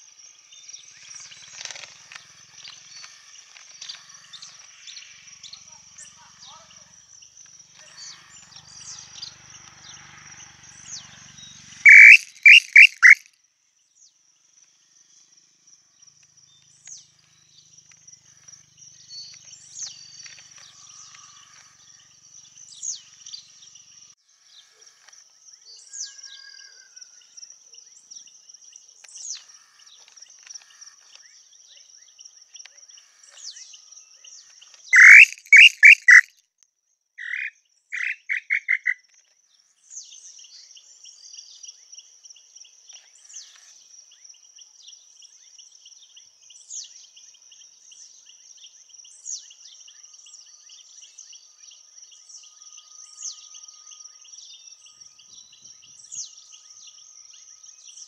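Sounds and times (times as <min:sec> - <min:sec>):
high insect drone: 0:00.0 - 0:13.1, 0:14.3 - 0:27.3, 0:39.7 - 0:58.0
small birds chirping: 0:00.0 - 0:36.3, 0:36.9 - 0:58.0
tinamou whistled song: 0:11.9 - 0:13.2, 0:35.0 - 0:36.3.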